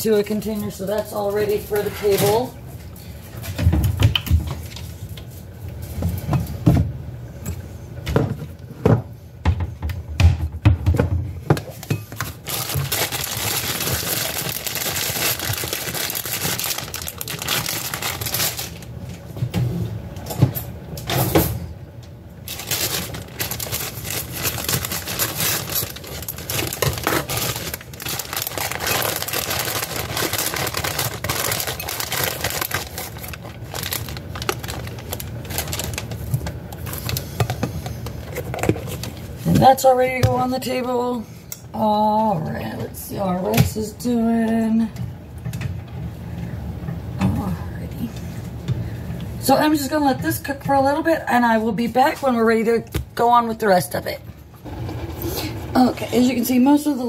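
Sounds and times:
objects knocking and thumping: 8.0s - 13.0s
plastic bag crinkling: 12.2s - 19.2s, 22.4s - 39.4s.

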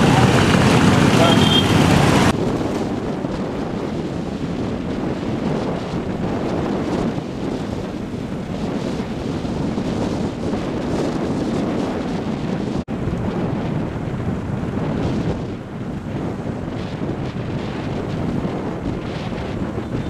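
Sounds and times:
motorcycle engines running: 0.0s - 11.1s
wind buffeting microphone: 0.0s - 20.0s.

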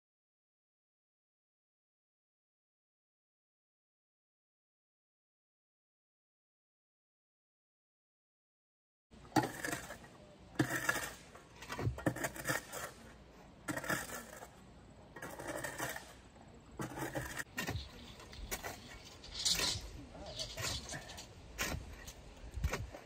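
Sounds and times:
shovel scraping gravelly soil: 9.3s - 23.0s.

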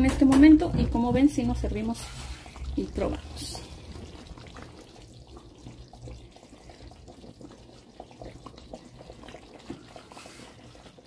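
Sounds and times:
wet plops and drips of stew: 2.5s - 11.0s.

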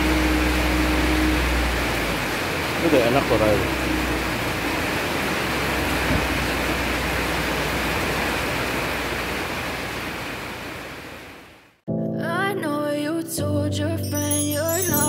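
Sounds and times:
car exhaust hissing and rumbling: 0.0s - 10.8s.

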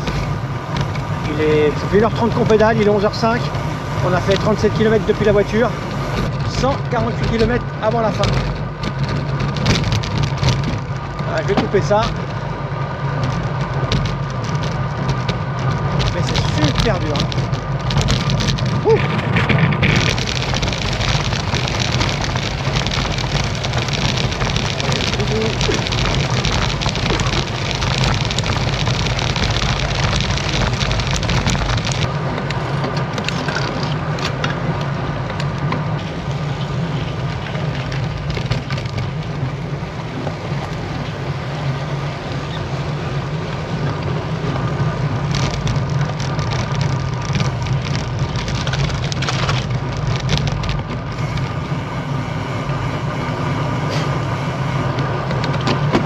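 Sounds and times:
bicycle tyre rumble: 0.0s - 56.0s
wind noise: 0.0s - 56.0s
small rattling knocks: 6.1s - 39.6s, 43.8s - 51.0s.

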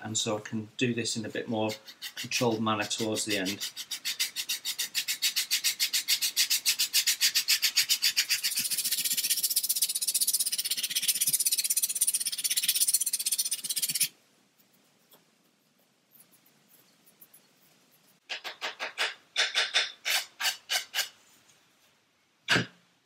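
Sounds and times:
sanding stick rasping on wood: 1.5s - 14.1s.

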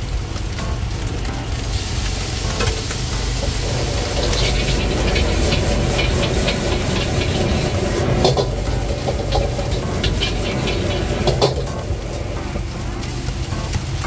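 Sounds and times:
low rumble of gas burner: 0.0s - 14.0s
rice sizzling in a wok: 0.0s - 14.0s
metal spatula scraping a wok: 3.2s - 12.6s.

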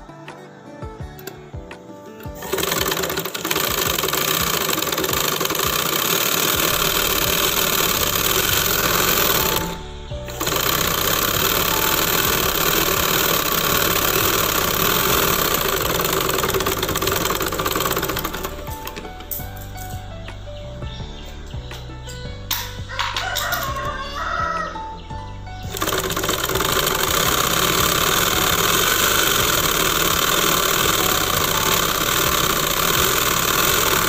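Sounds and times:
sewing machine running: 2.3s - 19.8s, 25.7s - 34.0s.

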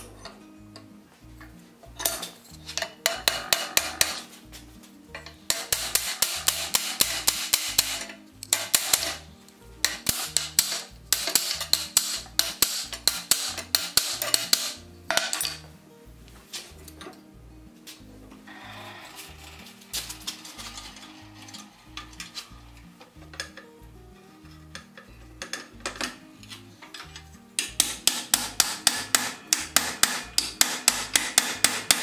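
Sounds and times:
hammer striking hot iron: 2.0s - 4.3s, 5.2s - 9.2s, 9.8s - 15.6s, 27.6s - 32.0s.

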